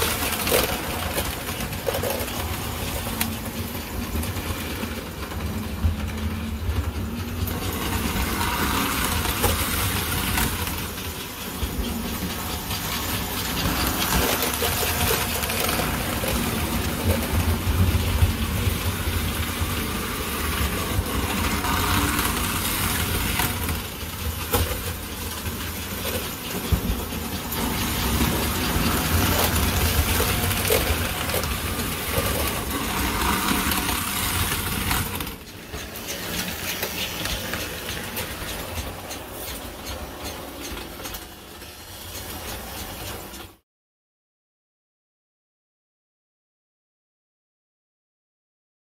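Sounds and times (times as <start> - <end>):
model train motors whirring: 0.0 - 43.6
track clicks: 20.5 - 43.6.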